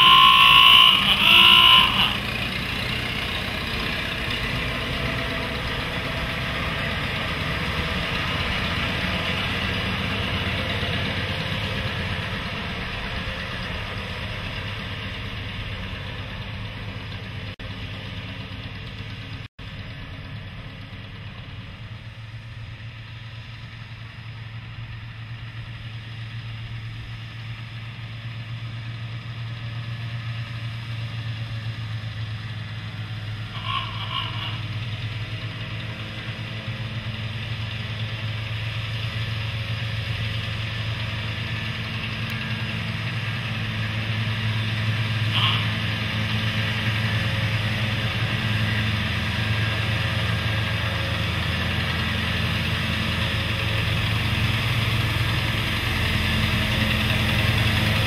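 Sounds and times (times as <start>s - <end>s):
brief high-pitched sounds: 0.0s - 2.2s
diesel locomotive engine humming: 0.0s - 58.0s.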